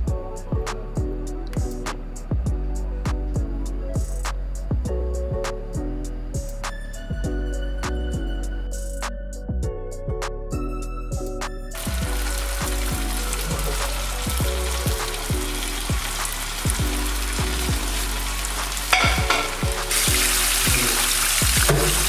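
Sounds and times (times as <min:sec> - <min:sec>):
chicken deep-frying in oil: 0:11.8 - 0:22.0.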